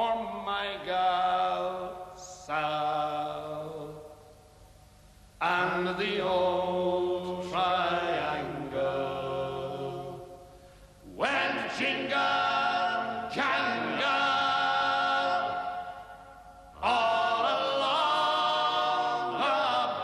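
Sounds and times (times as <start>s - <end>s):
men singing in harmony: 5.4s - 10.3s, 11.1s - 16.2s, 16.8s - 20.0s.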